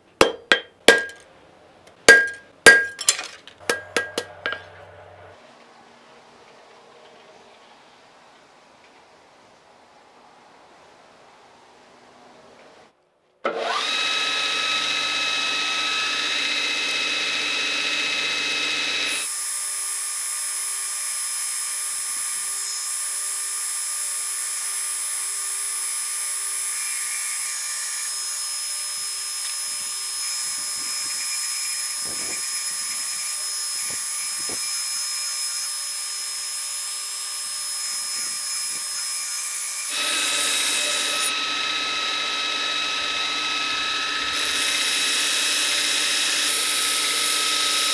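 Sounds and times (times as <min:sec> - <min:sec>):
belt grinder motor whine: 0:13.5 - 0:19.3, 0:38.2 - 0:47.9.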